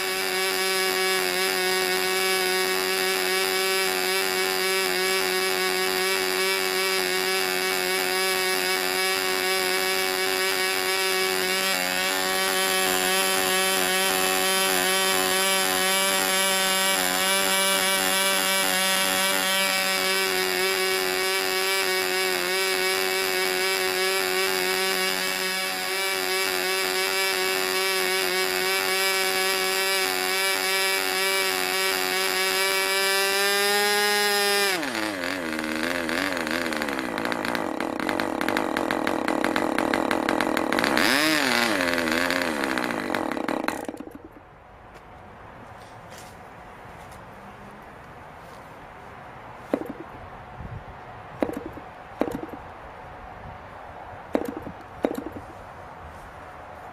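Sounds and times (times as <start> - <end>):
model glow engine running: 0.0 - 44.3.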